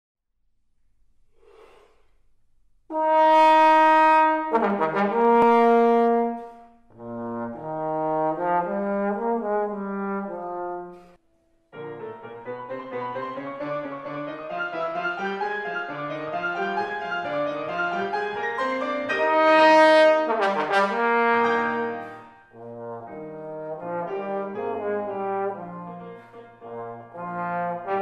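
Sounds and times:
brass playing in harmony: 2.9 - 11.2, 11.8 - 28.0.

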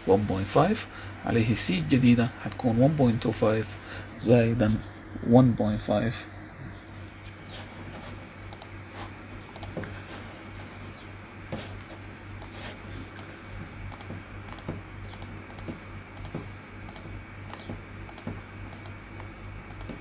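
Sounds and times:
steady low hum: 0.0 - 20.0
computer keyboard clicks: 9.5 - 9.8, 13.9 - 20.0.

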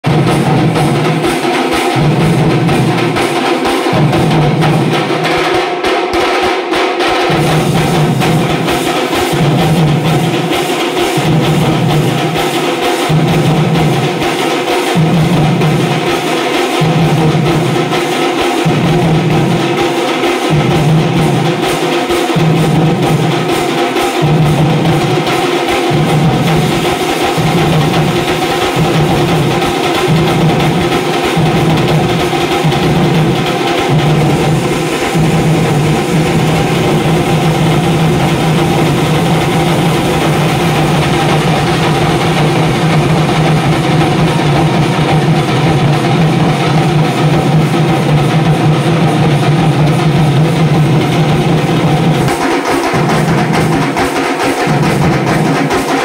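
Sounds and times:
barrel drums beaten with sticks: 0.0 - 56.0.

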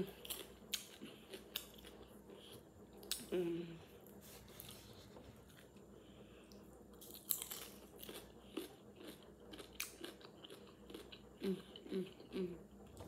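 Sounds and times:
chewing crunches: 0.0 - 3.4, 6.5 - 12.5.

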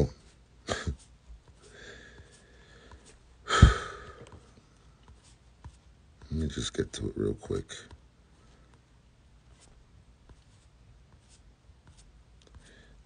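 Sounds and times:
man breathing close to microphone: 1.6 - 5.0, 12.5 - 13.0.

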